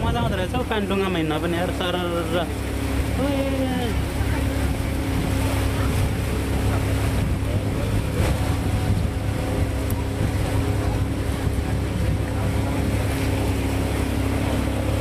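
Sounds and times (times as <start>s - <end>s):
wind rushing over microphone: 0.0s - 1.2s, 4.5s - 15.0s
motor droning: 0.2s - 15.0s.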